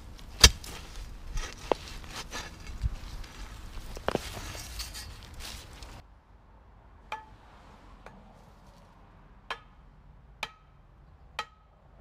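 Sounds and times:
metal clanks hammering a post: 9.5s - 9.8s, 10.4s - 10.8s, 11.4s - 11.8s.

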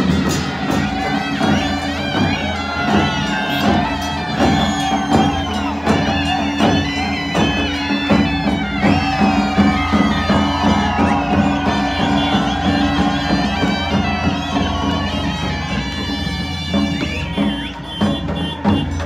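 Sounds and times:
quick drum beat: 0.0s - 19.0s
reed wind instrument melody: 0.0s - 19.0s.

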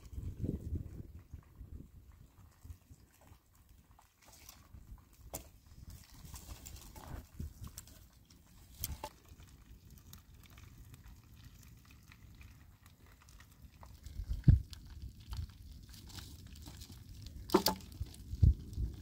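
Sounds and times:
dry twigs snapping: 15.3s - 18.2s.

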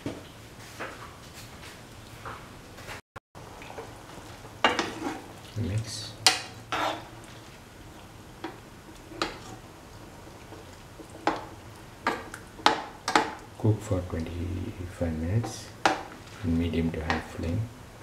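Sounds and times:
metal spoon scraping a pan: 4.6s - 9.7s.

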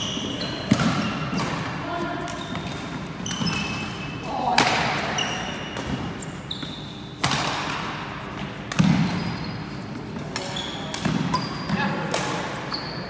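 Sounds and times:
shoes squeaking on wooden floor: 2.0s - 4.2s, 5.1s - 7.1s, 9.1s - 11.9s
racket striking shuttlecock: 7.2s - 9.4s.

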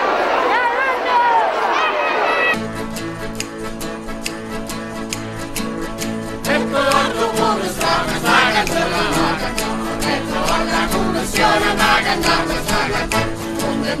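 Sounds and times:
accordion: 2.5s - 14.0s
guitar: 2.5s - 14.0s
percussion beat: 2.6s - 14.0s
choir singing: 6.3s - 14.0s.

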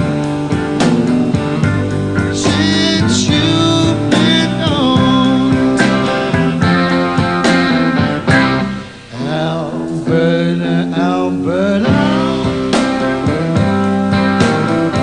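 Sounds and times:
strummed guitar chords: 0.0s - 15.0s
man singing: 2.4s - 6.1s, 9.1s - 12.8s.

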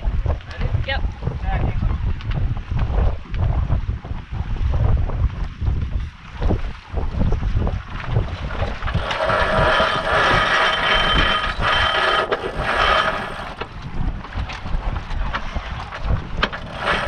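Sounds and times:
water noise: 0.0s - 17.0s
wind: 0.0s - 17.0s
winch ratcheting whirr: 8.8s - 13.7s, 16.4s - 17.0s.

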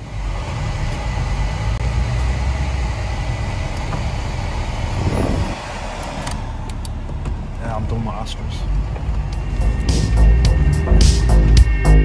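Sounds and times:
car engine rumble inside cabin: 0.0s - 12.0s.

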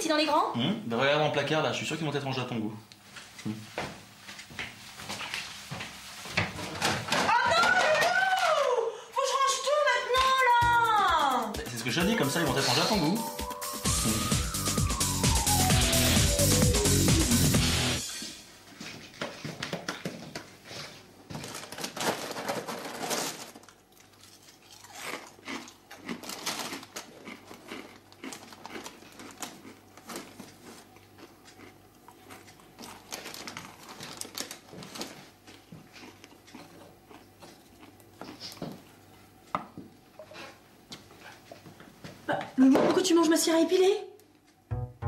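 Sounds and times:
crinkly packet torn open: 21.4s - 30.3s, 32.8s - 35.2s.

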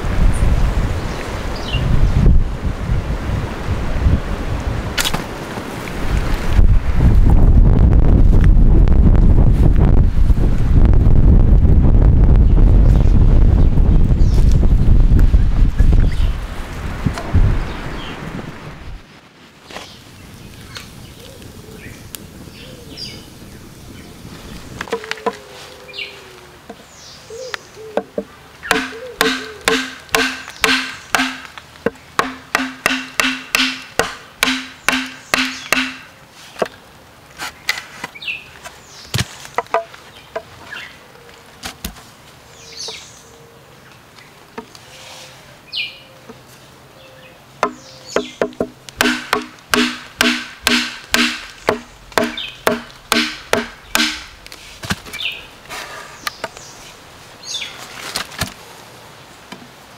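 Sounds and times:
birds chirping: 15.4s - 16.7s, 19.0s - 36.8s, 42.5s - 54.4s, 55.1s - 57.8s
knife chopping bamboo: 28.7s - 36.1s, 47.6s - 55.1s.

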